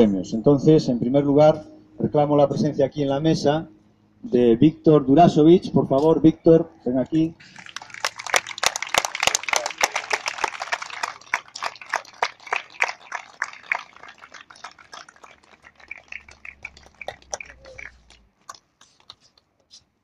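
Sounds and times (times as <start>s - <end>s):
audience applauding: 7.4s - 19.2s.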